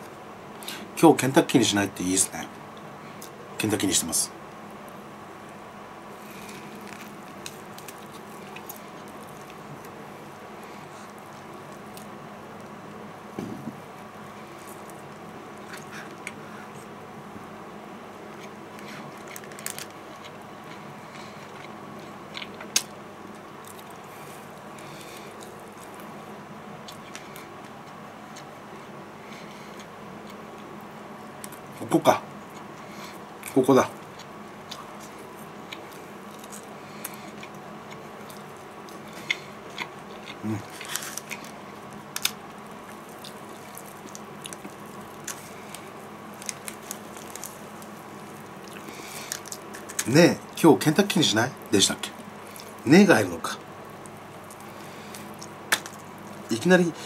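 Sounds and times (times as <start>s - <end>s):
person chewing: 6.2s - 10.0s, 18.3s - 26.1s, 26.8s - 30.7s, 32.5s - 50.1s, 51.6s - 52.8s, 53.6s - 56.5s.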